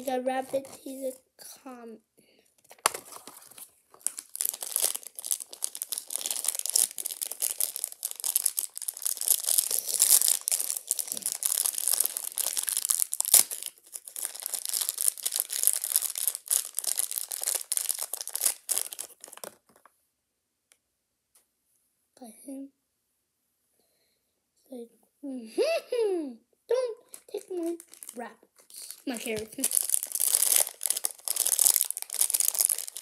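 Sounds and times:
plastic wrapper crinkling: 0.0 - 1.0, 2.6 - 19.9, 27.1 - 33.0.

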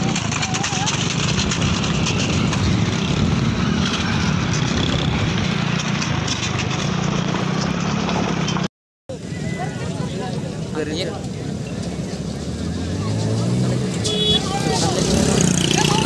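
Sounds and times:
motorcycle engine running: 0.0 - 8.6, 14.0 - 16.0
rushing noise: 0.0 - 9.7.

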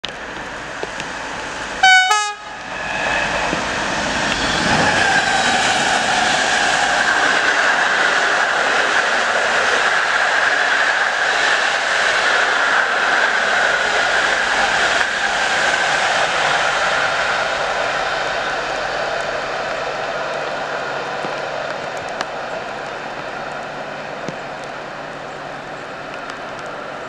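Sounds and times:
train wheels rumbling on rails: 0.0 - 27.0
train horn blast: 1.8 - 2.6.

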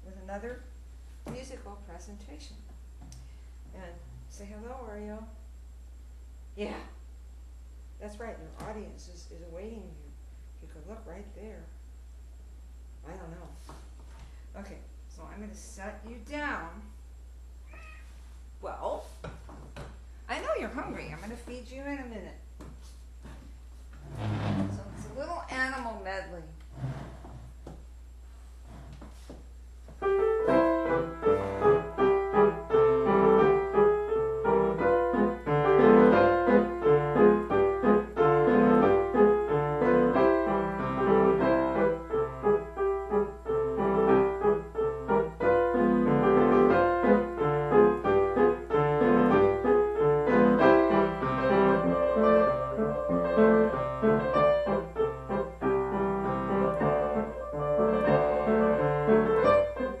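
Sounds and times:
solo piano: 30.0 - 60.0.

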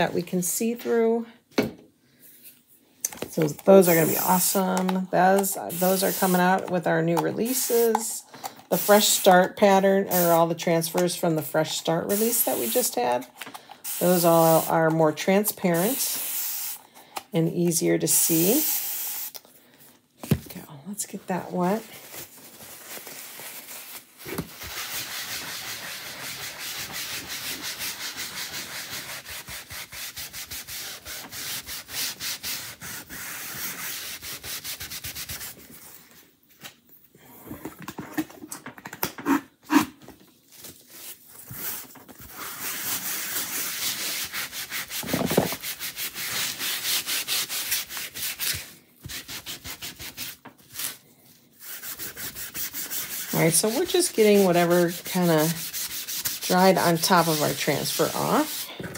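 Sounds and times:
knocks and handling sounds: 19.8 - 20.7, 45.0 - 45.7.

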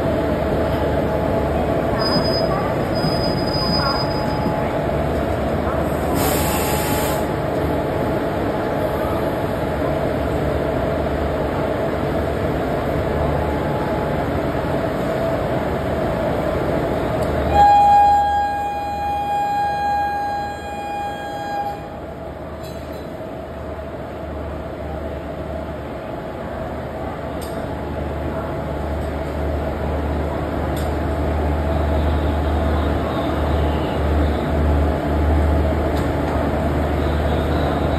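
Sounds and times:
electric locomotive humming: 0.0 - 37.9
locomotive horn blast: 17.5 - 22.0.

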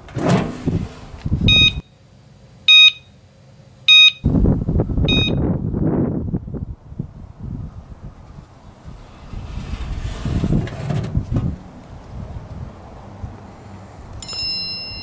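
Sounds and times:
wind on microphone: 0.3 - 1.8, 4.2 - 14.2
receiver beeping: 1.5 - 1.9, 2.7 - 3.1, 3.9 - 4.3, 5.1 - 5.4
microphone handling noise: 8.3 - 11.6.

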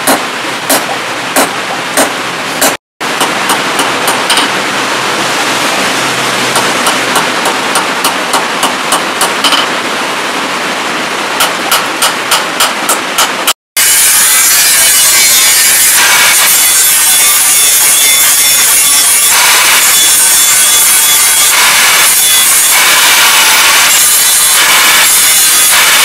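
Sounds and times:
hammer striking steel on anvil: 0.0 - 4.6, 11.4 - 16.1
steady rushing noise: 0.0 - 13.6.

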